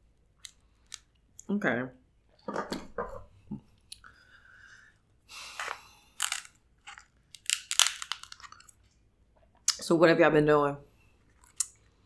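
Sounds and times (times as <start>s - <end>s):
crab shell crunching: 5.5s - 8.8s.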